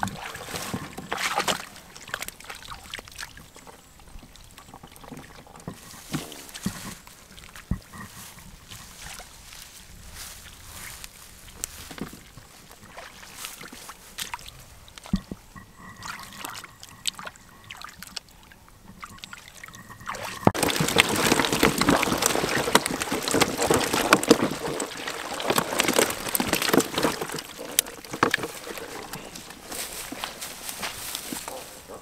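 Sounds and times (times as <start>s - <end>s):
hands splashing in muddy water: 0.0s - 3.3s, 19.3s - 31.4s
faint wet clicks: 12.4s - 20.5s.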